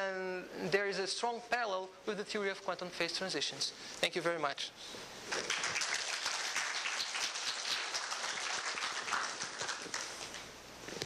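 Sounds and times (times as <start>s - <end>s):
audience applauding: 5.3s - 10.5s.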